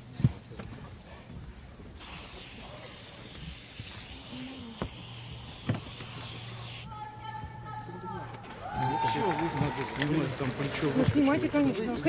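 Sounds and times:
steady hiss: 0:01.9 - 0:06.9.

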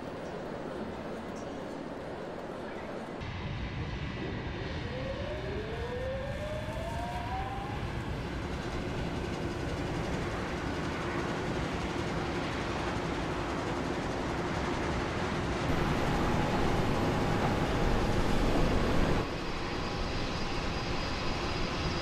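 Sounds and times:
whine rising in pitch: 0:04.2 - 0:08.0, 0:15.7 - 0:22.0
mechanical rumble: 0:14.6 - 0:19.3
low steady hum: 0:15.7 - 0:19.3.

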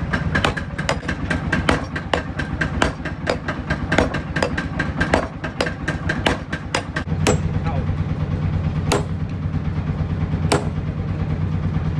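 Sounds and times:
hammer striking hot steel: 0:00.0 - 0:07.6, 0:08.9 - 0:09.3, 0:10.5 - 0:10.9
steady low hum: 0:00.0 - 0:11.9.

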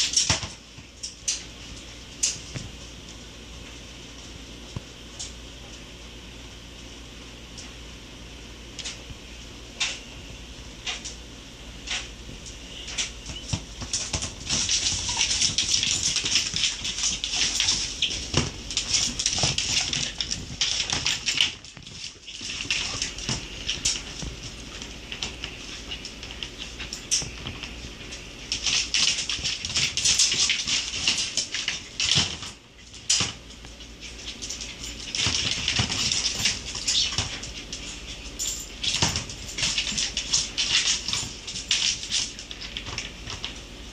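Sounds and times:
dog claws clicking on floor: 0:10.8 - 0:11.2, 0:11.8 - 0:43.7.

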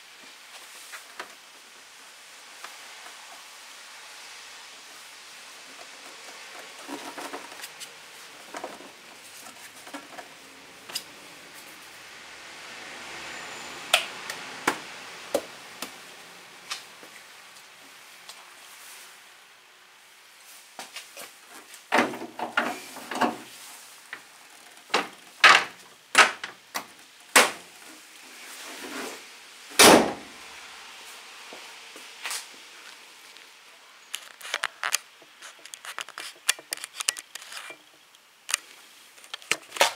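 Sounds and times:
car bonnet shutting with thud: 0:29.8 - 0:30.2.

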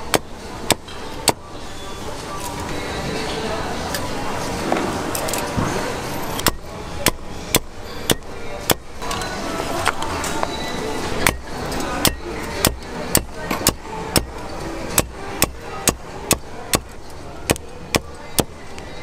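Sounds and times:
cleaver chopping on wooden board: 0:15.0 - 0:16.9.

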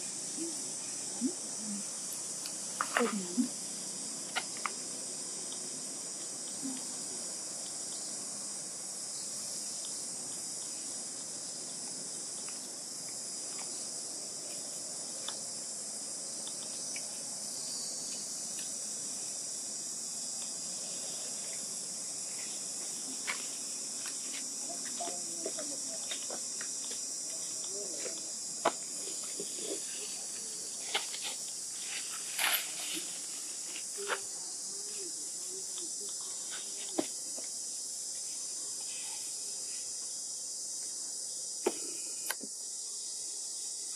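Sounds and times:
insect chorus drone: 0:00.0 - 0:43.9.

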